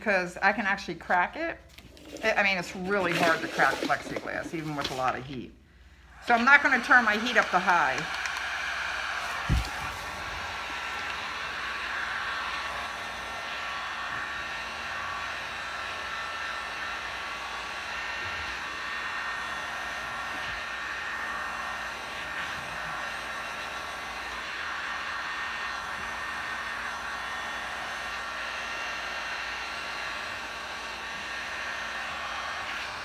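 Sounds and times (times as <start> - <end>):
heat gun blowing: 1.7 - 33.0.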